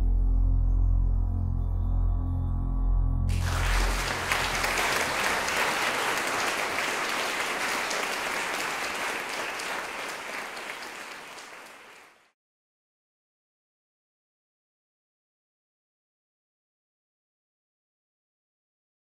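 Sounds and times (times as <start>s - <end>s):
audience applauding: 3.3s - 12.3s.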